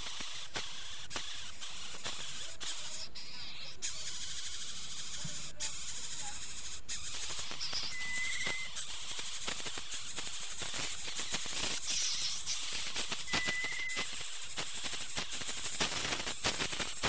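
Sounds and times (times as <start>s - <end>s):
nestlings hissing: 0.0s - 17.0s
short wavering whistle: 7.7s - 8.8s, 13.3s - 14.1s.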